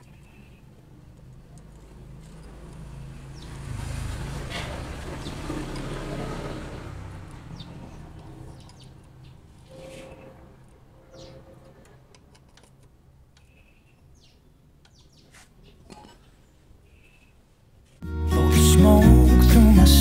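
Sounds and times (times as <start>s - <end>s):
vehicle engine passing by: 1.7s - 11.8s.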